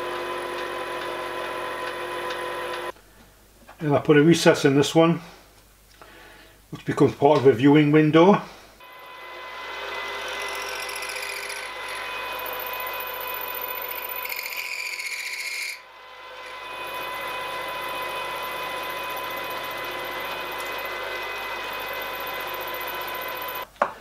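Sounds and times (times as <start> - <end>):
end mill cutting chatter: 0.0 - 2.9, 9.5 - 14.9, 16.4 - 23.6
milling spindle whine: 0.0 - 2.9, 8.8 - 23.7.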